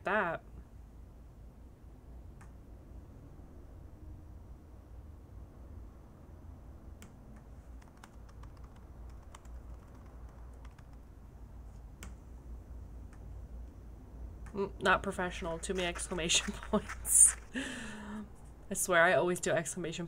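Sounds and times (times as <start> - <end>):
faint low rumble: 0.0 - 20.0
typing on laptop keyboard: 7.3 - 11.1.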